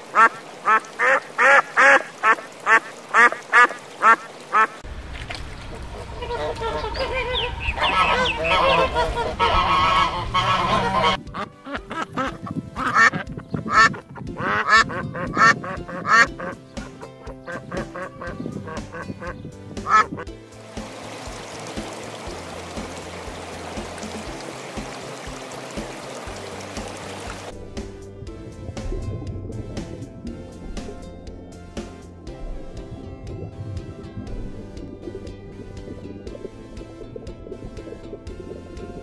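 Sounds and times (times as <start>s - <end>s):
ducks quacking: 0.0s - 4.8s, 5.8s - 20.3s
low rumble: 4.8s - 10.8s, 27.5s - 39.0s
flock of geese and ducks chattering: 6.0s - 16.6s.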